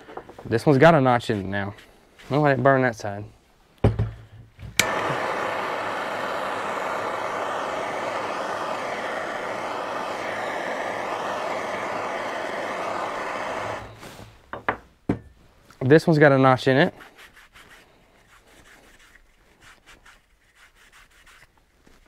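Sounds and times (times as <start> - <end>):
torch flame hissing: 4.7 - 14.4.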